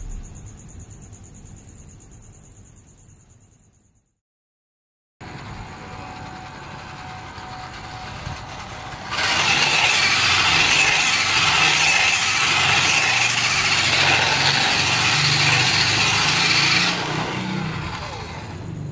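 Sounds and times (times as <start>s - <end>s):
toy truck motor whirring: 5.8s - 18.6s
tyres rolling over tiles: 8.4s - 18.3s.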